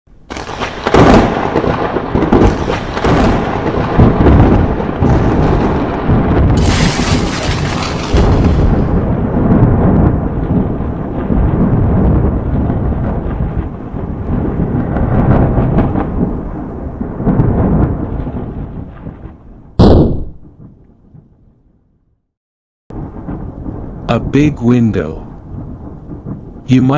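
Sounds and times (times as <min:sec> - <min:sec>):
thunder rumbling: 0:00.2 - 0:21.8, 0:22.9 - 0:26.9
sharp thunder crack: 0:00.3 - 0:21.2, 0:22.9 - 0:26.9
sudden loud burst with ringing: 0:06.5 - 0:09.2.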